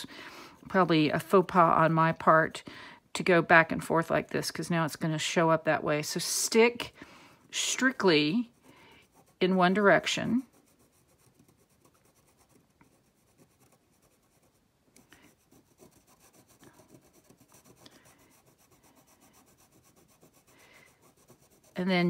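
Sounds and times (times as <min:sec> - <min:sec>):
pencil scratching on fabric: 0:05.4 - 0:22.0.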